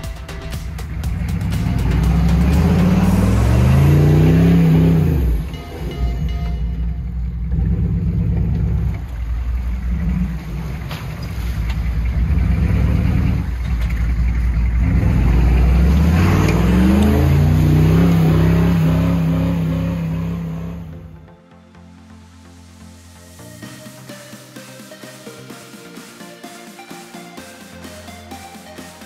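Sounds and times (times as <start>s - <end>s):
engine revving under heavy throttle: 0.8s - 6.3s, 6.9s - 21.2s
tires churning through mud: 0.8s - 21.2s.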